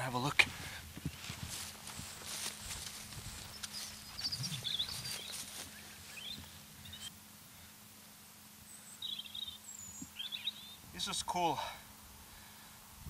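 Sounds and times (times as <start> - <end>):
small birds chirping: 0.1 - 7.8, 8.6 - 11.6
footsteps on grass: 0.5 - 7.1.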